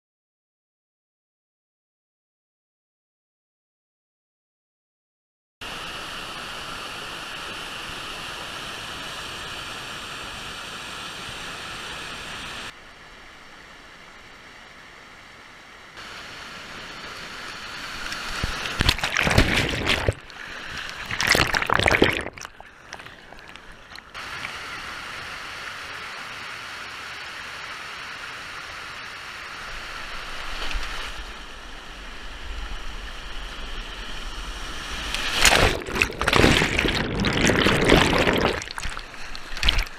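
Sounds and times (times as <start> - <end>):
whitewater rushing over rock: 16.0 - 24.7, 34.4 - 39.9
water splashing on microphone: 17.9 - 24.6, 34.6 - 39.9.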